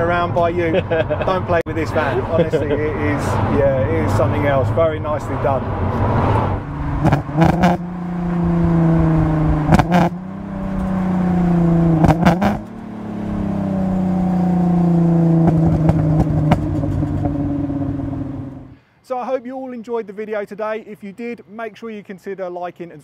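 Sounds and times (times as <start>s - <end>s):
engine revving in gear: 5.4s - 18.7s.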